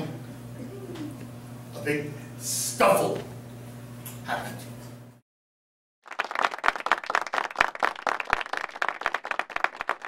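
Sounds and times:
audience applauding: 6.0 - 10.0.

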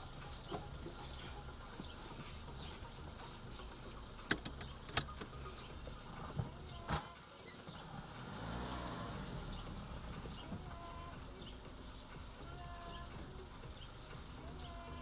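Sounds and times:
car mechanical hum rising in pitch: 0.0 - 15.0
low rumble inside car: 0.0 - 15.0
sharp clicks: 4.2 - 5.4.

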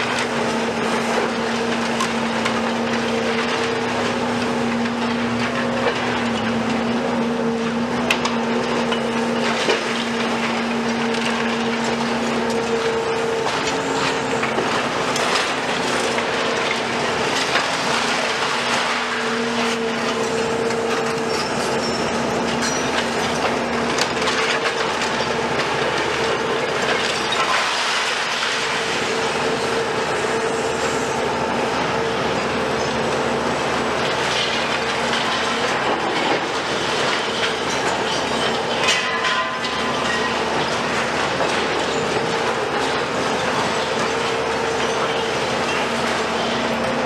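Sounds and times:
excavator engines and hydraulics: 0.0 - 47.0
concrete rubble clattering: 8.0 - 29.7, 33.9 - 47.0.

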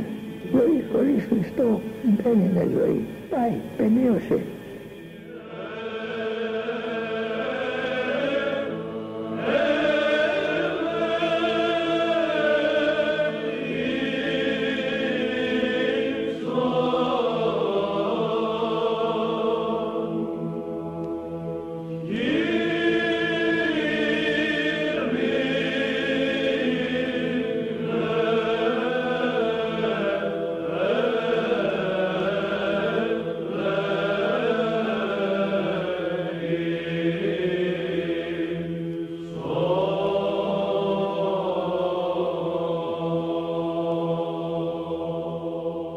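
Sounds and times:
voices chanting: 0.0 - 20.4, 22.0 - 45.8
held vocal drone: 0.0 - 45.9.

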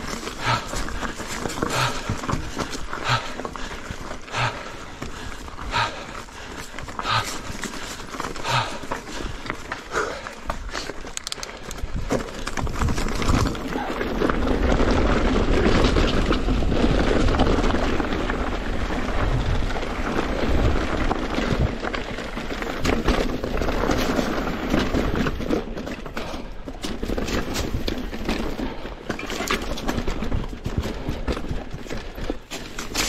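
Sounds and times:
bike clattering over stone: 0.0 - 5.5, 6.2 - 33.0
bike tyres crunching over rock: 0.0 - 33.0
wind rumble on microphone: 11.7 - 25.4.

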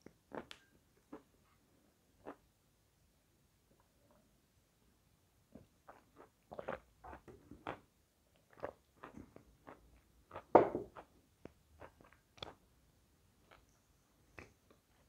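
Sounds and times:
chewing wet crunches: 5.9 - 12.6.

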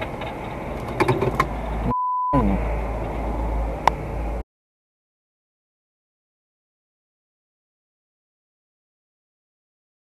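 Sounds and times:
person speaking in car: 1.8 - 2.7
censor beep: 1.9 - 2.5.

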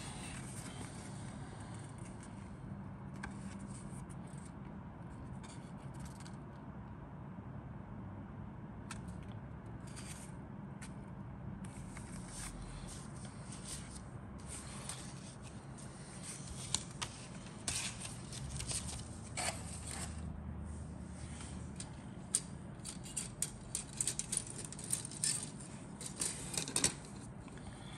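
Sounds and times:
stiff paper rustling and crackling: 11.9 - 20.3.

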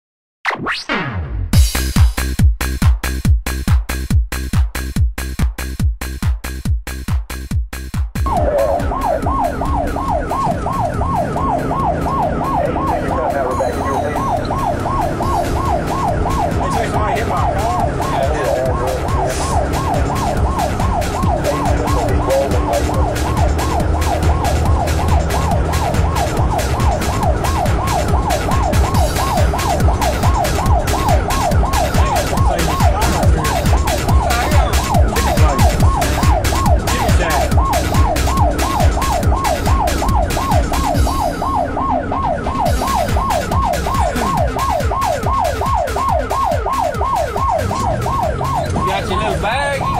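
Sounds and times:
engine and road rumble: 8.2 - 49.9
siren yelping: 8.2 - 49.9.

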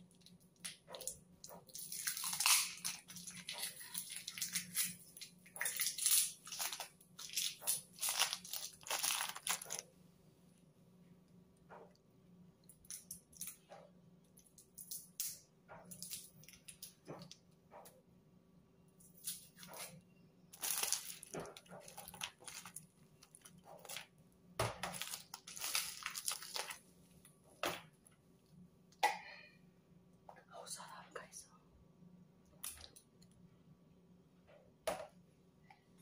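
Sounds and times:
plastic bag crinkling: 1.6 - 9.8, 20.5 - 24.1, 24.8 - 26.8.

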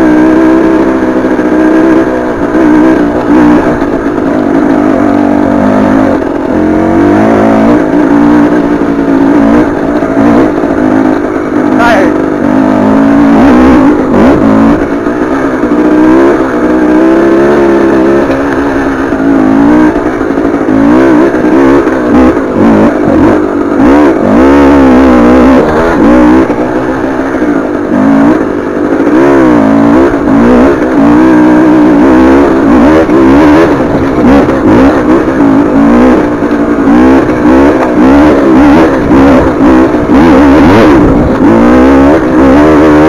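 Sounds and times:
two-stroke engine revving: 0.0 - 43.0.

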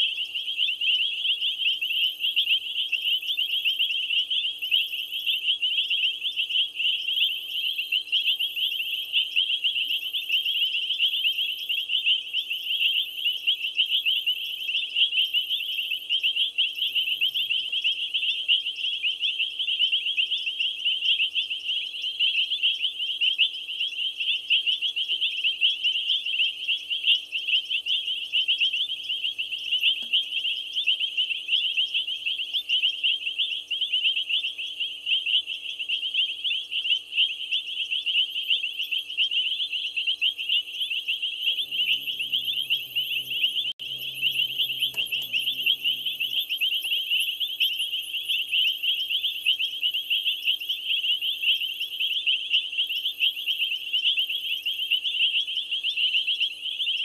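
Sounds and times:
high rapid animal chirping: 37.6 - 55.1
low multi-tone hum: 41.4 - 47.6.

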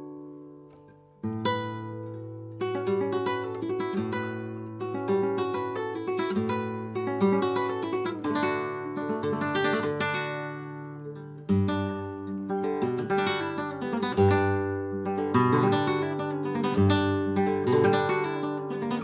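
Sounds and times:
fingerpicked flamenco guitar: 0.0 - 19.0.

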